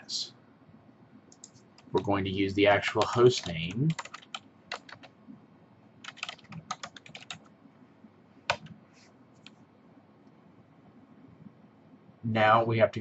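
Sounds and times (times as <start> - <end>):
typing on computer keyboard: 1.3 - 2.1, 2.9 - 5.1, 6.0 - 7.5.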